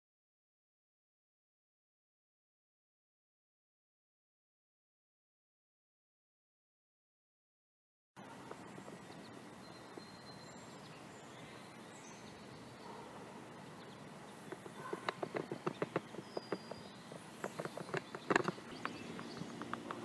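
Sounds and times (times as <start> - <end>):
faint outdoor ambience: 8.2 - 20.0
high bird-like chirps: 8.3 - 20.0
quick sharp clicking knocks: 14.5 - 16.8.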